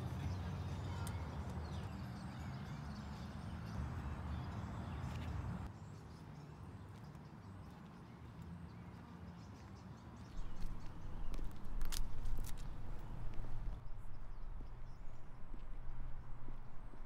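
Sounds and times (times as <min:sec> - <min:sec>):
low steady rumble: 0:10.4 - 0:17.0.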